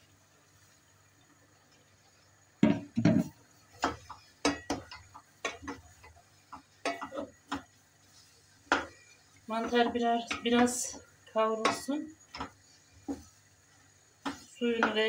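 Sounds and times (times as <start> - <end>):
wooden spoon knocking on pot: 2.6 - 7.8, 8.7 - 11.0, 11.6 - 13.3, 14.2 - 15.0.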